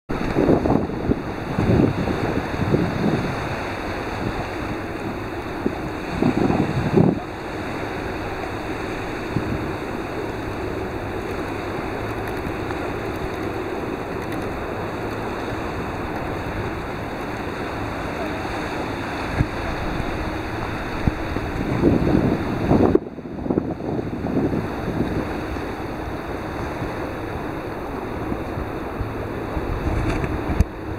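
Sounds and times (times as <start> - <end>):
wind buffeting microphone: 0.1 - 30.9
wind over choppy sea: 0.1 - 30.9.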